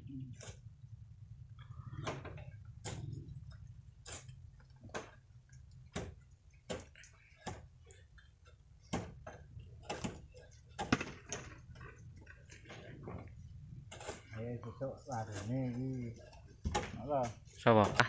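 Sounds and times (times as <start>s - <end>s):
low steady rumble: 0.0s - 6.7s
sharp clicks and knocks: 1.6s - 13.3s, 15.3s - 18.0s.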